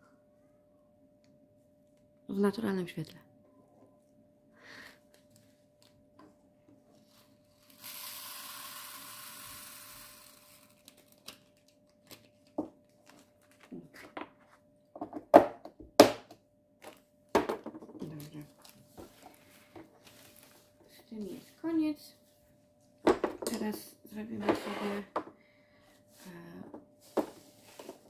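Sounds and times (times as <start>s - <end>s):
tiny beads pouring into container: 7.6s - 11.0s.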